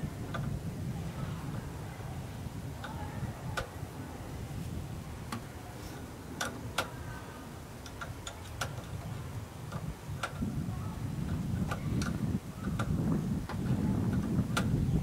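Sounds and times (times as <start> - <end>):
low rumbling noise: 0.0 - 15.0.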